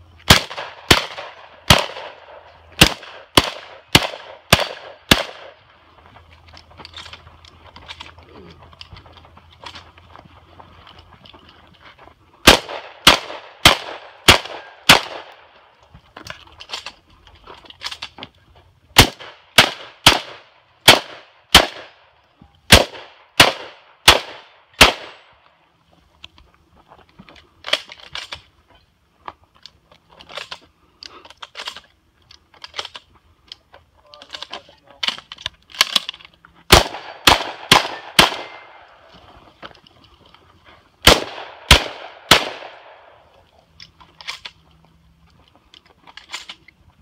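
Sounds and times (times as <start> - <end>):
shotgun shots: 0.3 - 5.6, 12.4 - 15.5, 19.0 - 22.0, 22.7 - 25.3, 36.7 - 38.9, 41.0 - 43.2.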